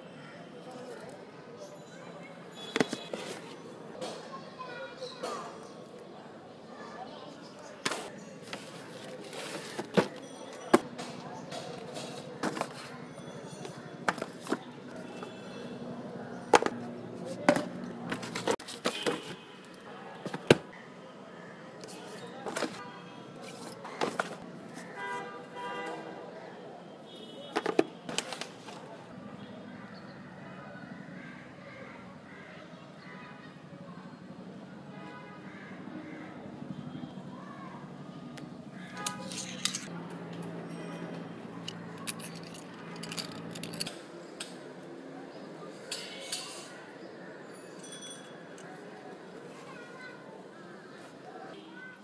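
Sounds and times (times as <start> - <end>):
books knocking and tapping: 2.7 - 3.5, 7.8 - 10.9, 11.9 - 12.9, 14.0 - 15.3, 16.5 - 19.4, 20.2 - 20.7, 22.4 - 22.8, 23.6 - 24.5, 27.6 - 28.5
metallic keyring clicks and clinks: 40.7 - 44.0.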